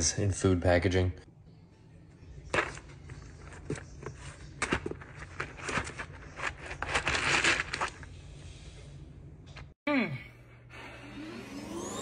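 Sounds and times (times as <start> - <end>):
cardboard cracking and ripping: 4.6 - 8.0
cardboard tearing: 4.9 - 8.0.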